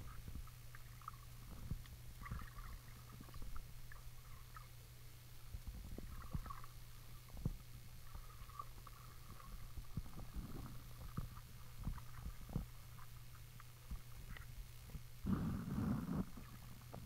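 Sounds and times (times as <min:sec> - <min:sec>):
underwater low rumble and hum: 0:00.0 - 0:17.0
underwater knocks and clicks: 0:00.1 - 0:04.0, 0:05.6 - 0:15.1.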